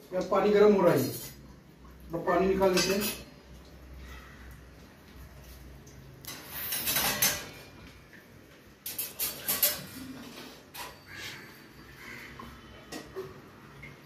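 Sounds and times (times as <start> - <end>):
pots and utensils clinking: 0.6 - 1.5, 2.5 - 3.4, 6.2 - 7.8, 8.7 - 11.4, 12.5 - 14.0.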